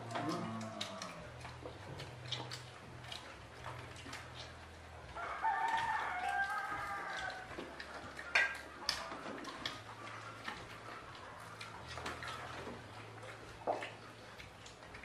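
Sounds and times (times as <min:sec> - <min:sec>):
faint low hum: 0:00.0 - 0:15.0
rooster crowing: 0:05.2 - 0:07.5.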